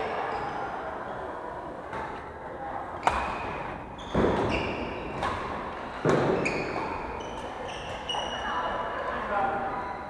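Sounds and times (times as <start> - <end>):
rackets hitting shuttlecock: 3.0 - 3.6
shoes squeaking on wooden floor: 6.2 - 8.4.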